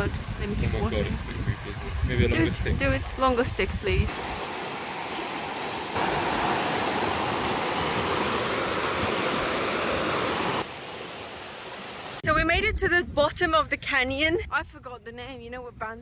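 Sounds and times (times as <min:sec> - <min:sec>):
fast river rushing: 0:00.0 - 0:12.2.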